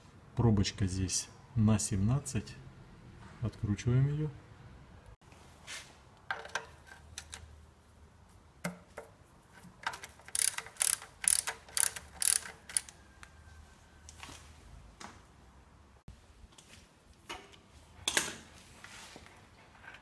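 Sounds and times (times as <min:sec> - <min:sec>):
ratchet wrench clicking: 0:10.0 - 0:13.0.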